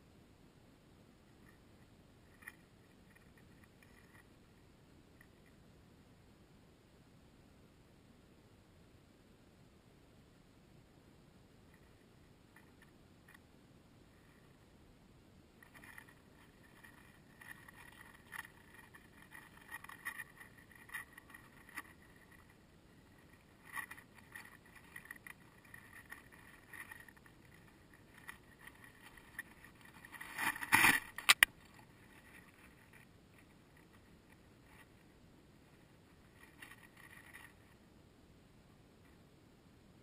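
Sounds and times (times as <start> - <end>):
sharp clicks: 30.4 - 31.5.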